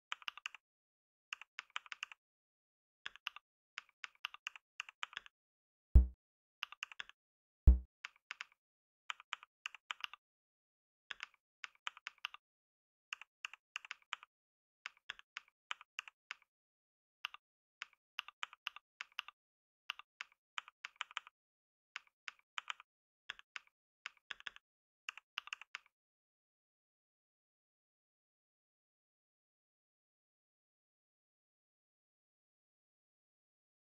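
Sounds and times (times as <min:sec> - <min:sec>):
heavy low thumps: 0:06.0 - 0:06.2.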